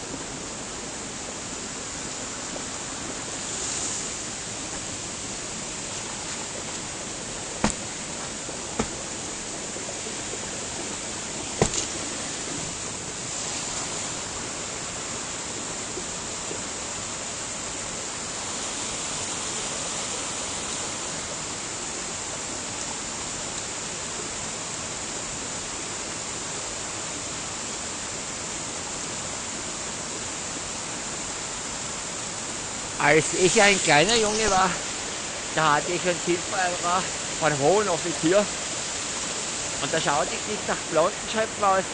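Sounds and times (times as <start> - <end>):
waterfall and stream rushing: 0.0 - 41.9
sharp knock: 7.6 - 7.9, 8.8 - 9.0, 11.6 - 12.0.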